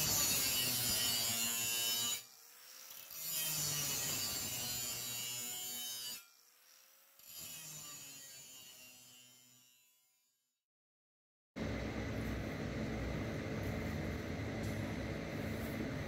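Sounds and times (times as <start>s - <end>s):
angle grinder grinding steel: 0.0s - 10.1s.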